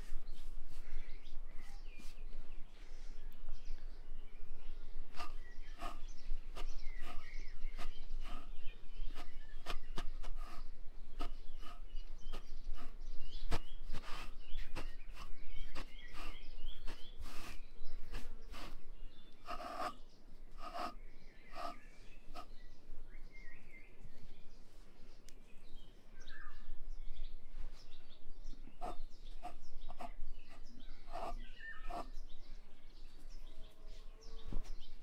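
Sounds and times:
birds chirping: 0:00.0 - 0:35.0
wool comb strokes: 0:11.2 - 0:18.8.

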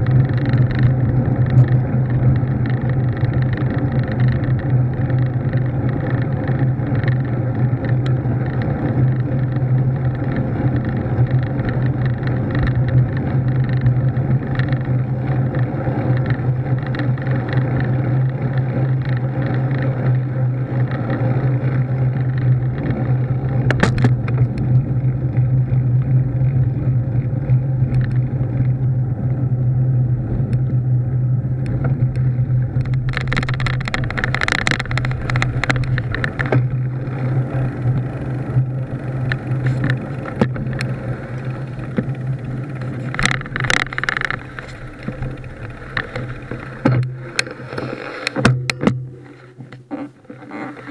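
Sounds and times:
bicycle rattling on grass: 0:00.0 - 0:29.5, 0:31.4 - 0:50.9
low hum: 0:00.0 - 0:50.9
wind and road rumble: 0:00.0 - 0:50.9.

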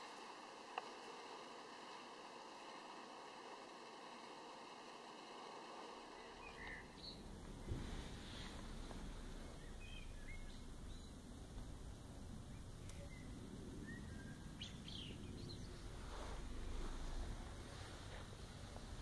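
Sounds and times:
low outdoor rumble: 0:00.0 - 0:19.0
faint bird chirps: 0:06.1 - 0:11.8, 0:12.4 - 0:17.2.

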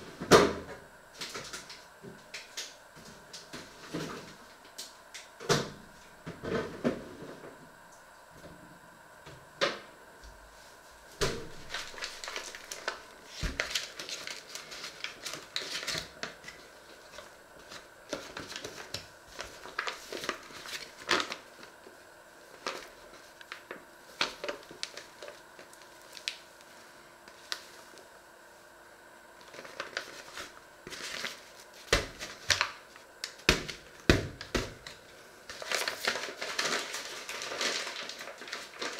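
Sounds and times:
faint hum: 0:00.0 - 0:38.9
paper rustling: 0:11.2 - 0:28.0, 0:29.4 - 0:38.9.

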